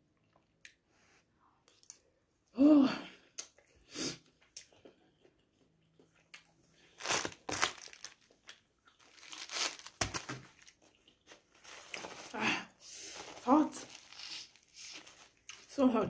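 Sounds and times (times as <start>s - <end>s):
paper tissue crinkling: 6.9s - 8.3s, 9.0s - 15.8s.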